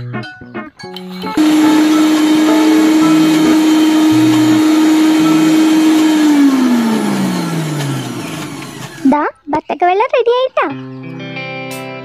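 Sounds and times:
small electric motor whining: 0:01.4 - 0:09.1.

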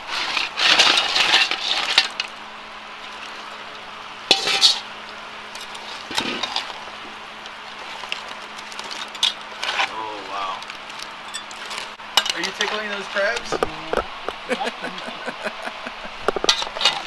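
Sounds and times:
crab shells clattering on metal: 0:04.3 - 0:04.8, 0:07.8 - 0:09.9, 0:16.2 - 0:17.0.

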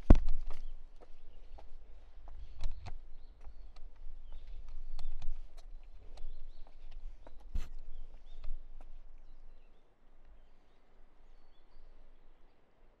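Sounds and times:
footsteps on hard path: 0:00.0 - 0:09.7.

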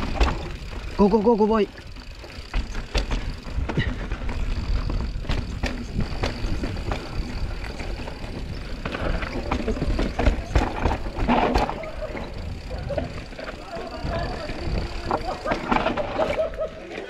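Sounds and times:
bike rattling over rocks: 0:00.0 - 0:17.0
wind buffeting microphone: 0:03.1 - 0:15.8.

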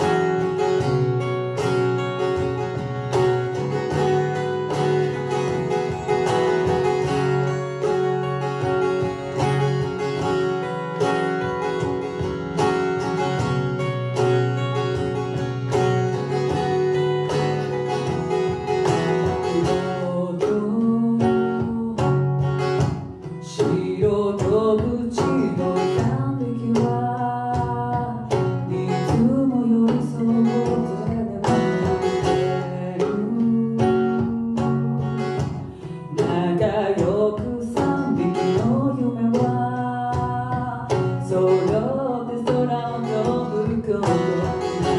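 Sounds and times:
acoustic guitar picking: 0:00.0 - 0:44.9
woman singing: 0:19.0 - 0:44.9.

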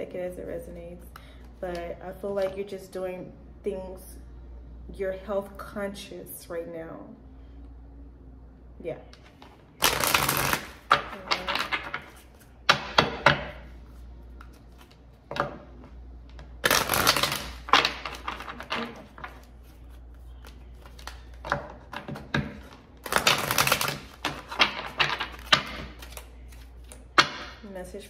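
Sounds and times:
cards being shuffled: 0:09.2 - 0:13.2, 0:13.8 - 0:15.4, 0:16.3 - 0:27.2.

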